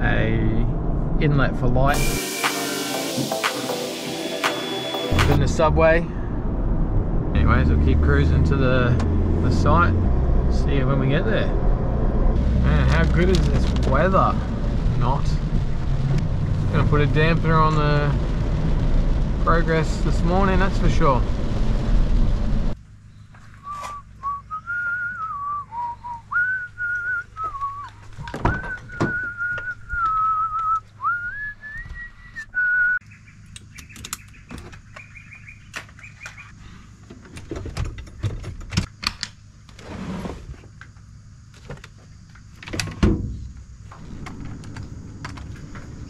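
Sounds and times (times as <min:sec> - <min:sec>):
person whistling a tune: 0:23.6 - 0:33.0.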